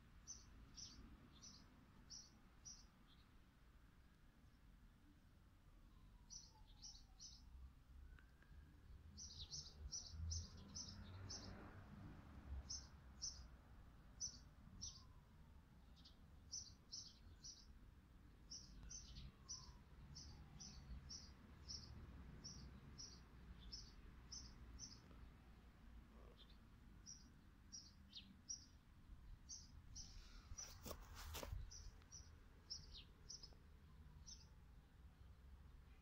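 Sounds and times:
small bird chirping: 0:26.2 - 0:34.6.

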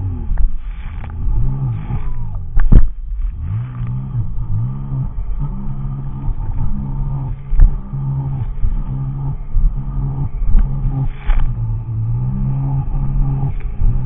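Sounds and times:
jet ski engine revving: 0:00.0 - 0:14.0
sharp loud thumps: 0:00.3 - 0:03.4, 0:06.2 - 0:12.2.

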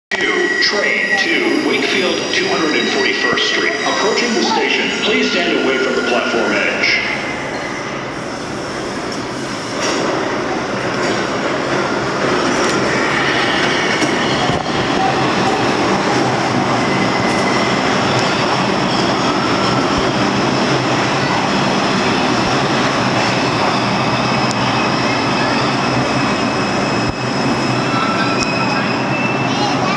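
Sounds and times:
subway train wheels rumbling: 0:00.1 - 0:29.9
wheel and brake squeals: 0:23.4 - 0:29.9.

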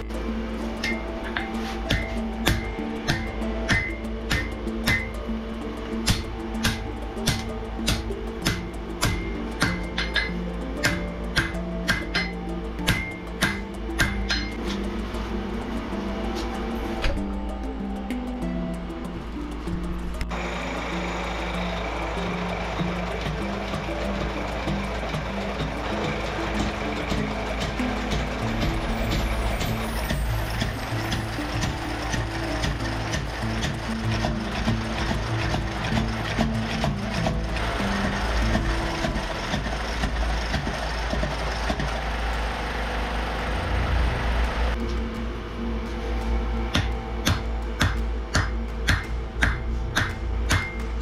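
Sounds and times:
background music with held notes: 0:00.0 - 0:51.0
forge machinery rumbling: 0:00.0 - 0:51.0.

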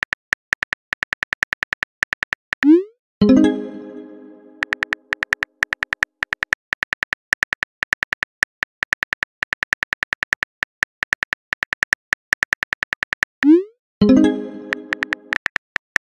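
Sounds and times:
phone keyboard tap clicks: 0:04.6 - 0:13.3, 0:14.7 - 0:16.0.

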